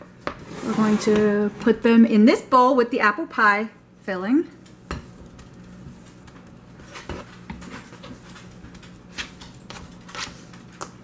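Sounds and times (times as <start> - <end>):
dough pats and scrapes on plastic board: 4.2 - 11.0.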